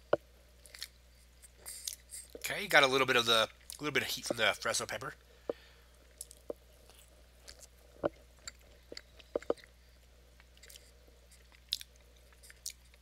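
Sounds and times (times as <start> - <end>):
person chewing: 0.6 - 2.4, 5.5 - 13.0.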